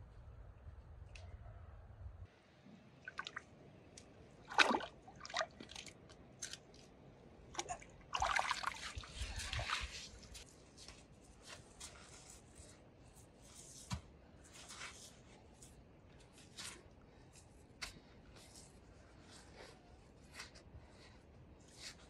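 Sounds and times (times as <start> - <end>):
water splashing and sloshing: 2.7 - 10.5.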